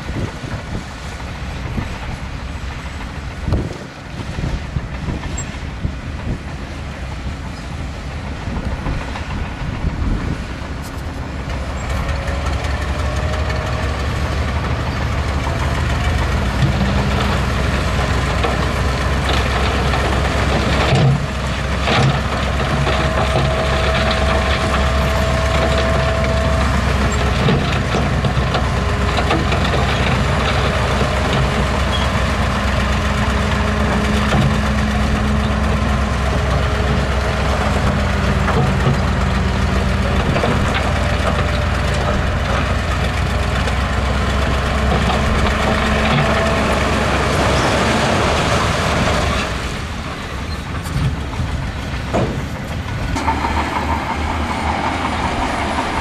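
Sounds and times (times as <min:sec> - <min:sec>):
heavy diesel machinery running: 0:00.0 - 0:56.0
metal clanks and knocks: 0:16.4 - 0:49.6, 0:50.4 - 0:56.0.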